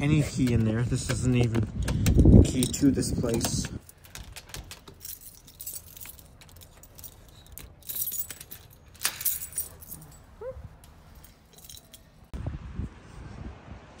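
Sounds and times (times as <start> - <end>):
key clicking in door lock: 0.1 - 9.8
keys jangling: 0.2 - 12.3.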